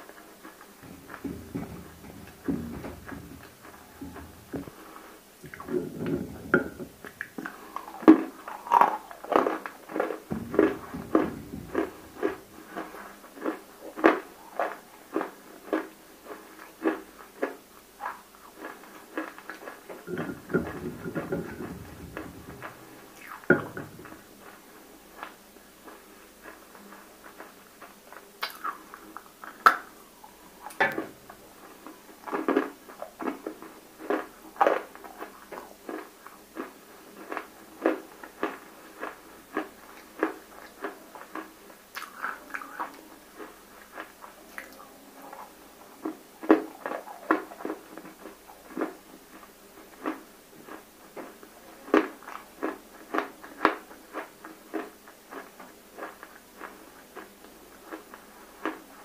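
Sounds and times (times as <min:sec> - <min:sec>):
biting and chewing crunches: 0:00.1 - 0:24.6, 0:31.0 - 0:44.8.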